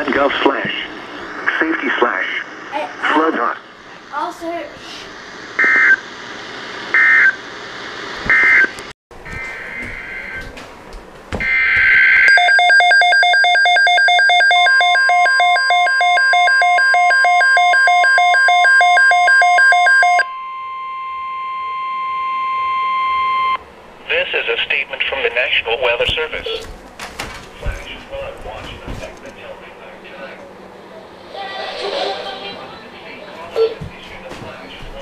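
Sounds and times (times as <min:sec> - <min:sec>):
steady warning tone: 0:08.3 - 0:10.6, 0:11.4 - 0:24.3
fast-pulsing alarm beep: 0:11.4 - 0:23.6
short loud beeps: 0:12.3 - 0:23.6.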